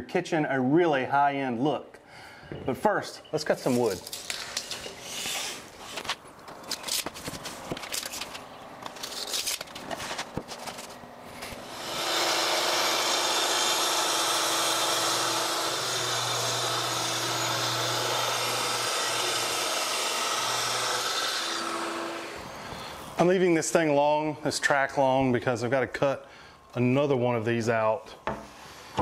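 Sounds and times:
clicks and rubbing of handling: 0:05.8 - 0:11.6
circular saw cutting plywood: 0:11.6 - 0:22.6.

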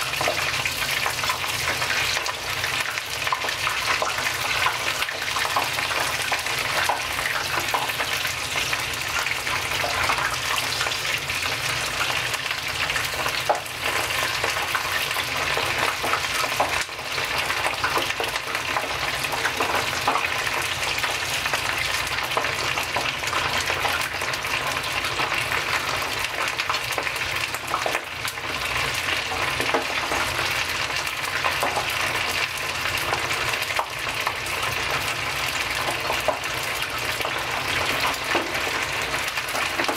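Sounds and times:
chicken deep-frying crackling sizzle: 0:00.0 - 0:39.9.

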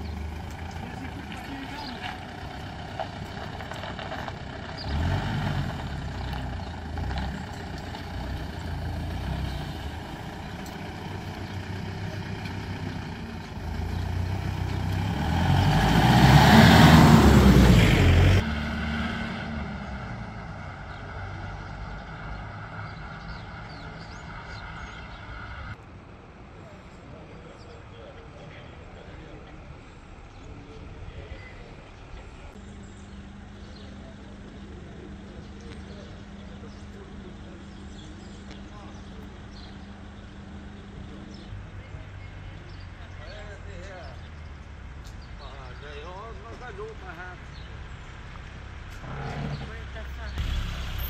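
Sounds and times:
vehicle driving close by: 0:00.0 - 0:25.8, 0:48.9 - 0:51.0
road traffic passing: 0:00.0 - 0:51.0.

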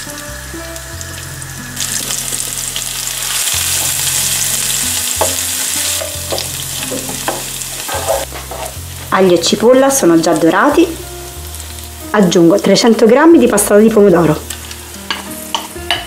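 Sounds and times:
food sizzling in oil: 0:00.0 - 0:16.0
wooden spoon knocking pan: 0:05.2 - 0:08.6.

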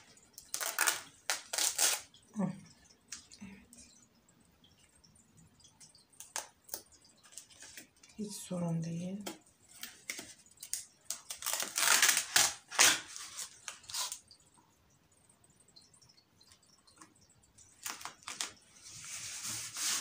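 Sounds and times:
felt and cardboard crinkling: 0:09.7 - 0:14.2
felt rubbing on cardboard: 0:19.0 - 0:20.0.

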